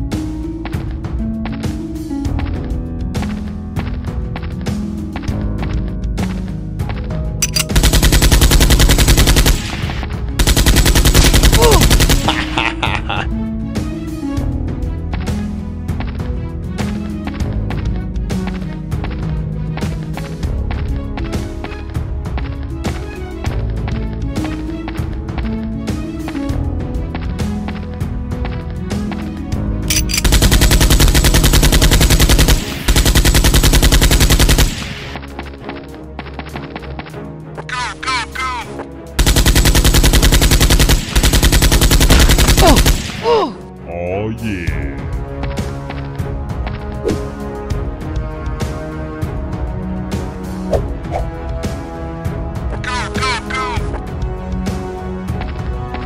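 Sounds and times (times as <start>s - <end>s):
background music: 0.0s - 56.0s
automatic gunfire sound effect: 7.4s - 12.7s, 29.9s - 35.2s, 39.2s - 43.3s.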